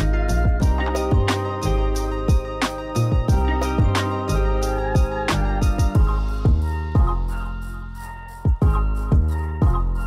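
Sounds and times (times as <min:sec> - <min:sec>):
sustained chords: 0:00.0 - 0:10.0
drum beat: 0:00.3 - 0:07.3, 0:08.5 - 0:09.9.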